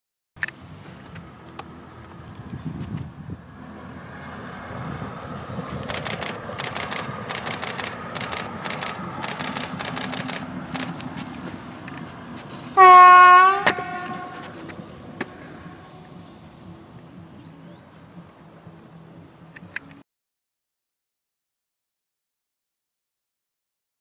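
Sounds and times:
railbus running past: 0.4 - 20.0
wheels clicking over rail joints: 4.0 - 12.9
train horn blast: 12.7 - 14.7.

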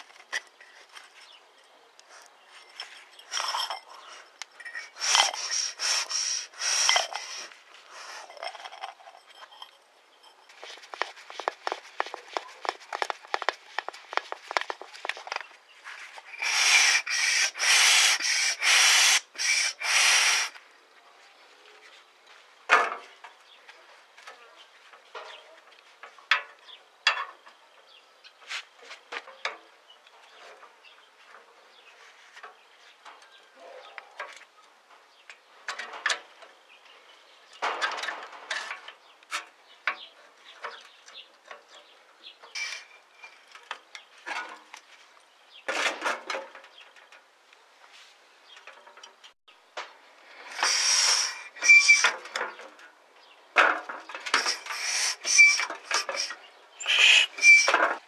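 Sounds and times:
rasping bursts: 4.7 - 7.6, 16.2 - 20.6, 50.4 - 52.3, 54.3 - 58.0
faint squeak: 50.7 - 52.2, 54.4 - 57.9.

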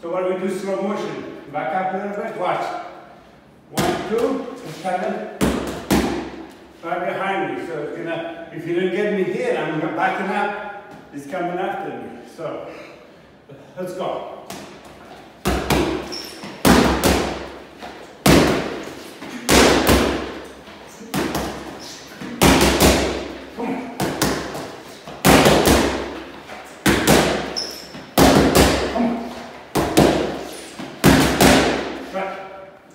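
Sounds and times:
gloves smacking focus mitts: 14.4 - 32.0.

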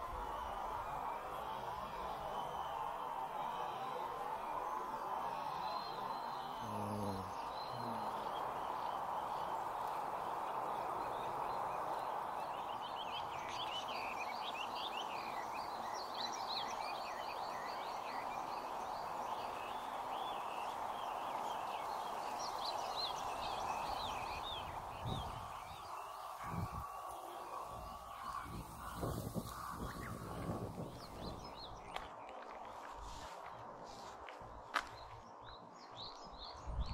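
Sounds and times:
steady dense background din: 0.0 - 22.1
small birds chirping: 0.0 - 36.9.

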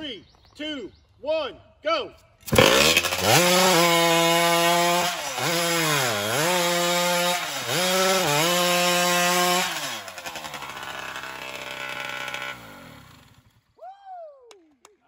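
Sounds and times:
chainsaw screaming through log: 2.5 - 13.6.

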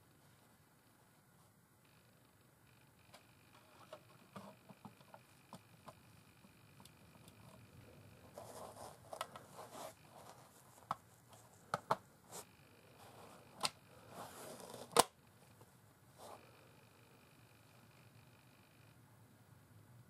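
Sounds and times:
soft rubbing and rustling: 7.4 - 14.9, 15.6 - 16.5.

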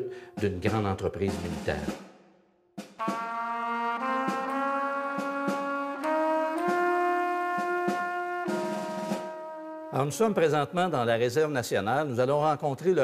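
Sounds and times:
brass chords: 2.8 - 11.0.

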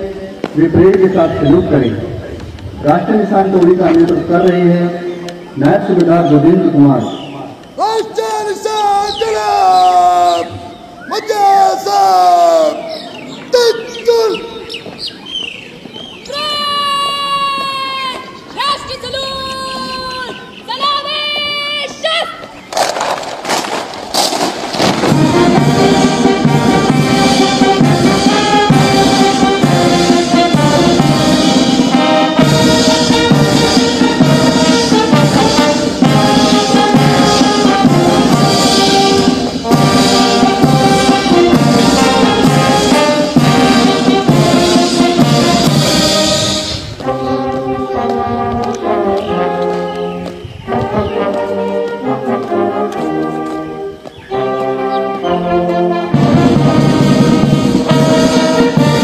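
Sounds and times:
brass band playing a march: 22.8 - 59.0
steady drumbeat: 23.6 - 49.9, 55.7 - 59.0.

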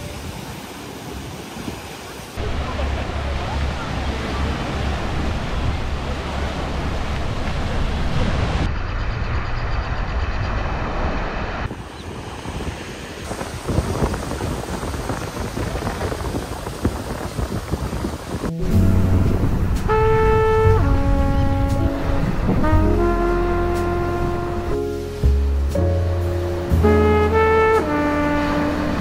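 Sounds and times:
small waves washing on beach: 0.0 - 8.7, 11.6 - 19.4
wind buffeting microphone: 0.1 - 24.7.

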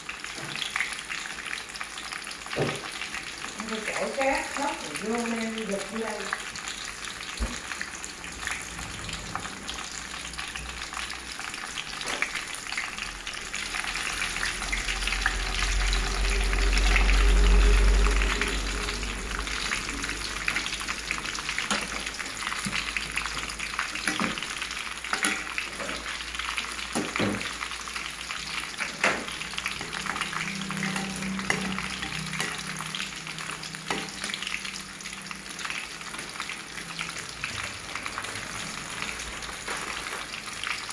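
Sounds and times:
deep-frying sizzle: 0.0 - 40.9
low rumble: 13.7 - 21.3.

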